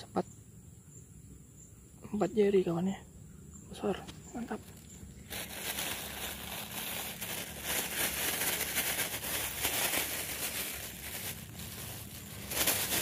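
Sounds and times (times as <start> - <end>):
plastic bag crinkling: 4.5 - 13.0.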